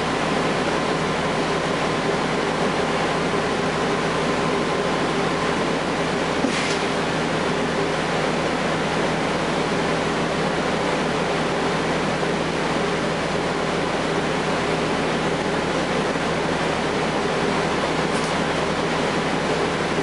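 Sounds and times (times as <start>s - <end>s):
bus diesel engine drone: 0.0s - 20.0s
short hiss: 6.4s - 6.9s.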